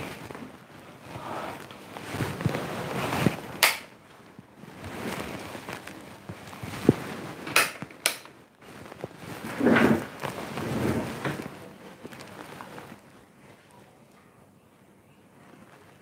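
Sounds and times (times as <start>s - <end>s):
rustling: 0.0s - 14.2s.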